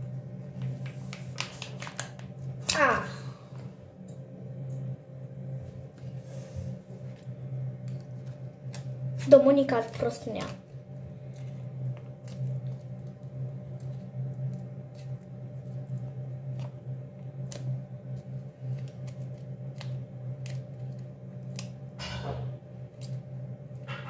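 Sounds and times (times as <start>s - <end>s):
steady low hum: 0.0s - 24.0s
plastic rustle: 0.6s - 2.5s.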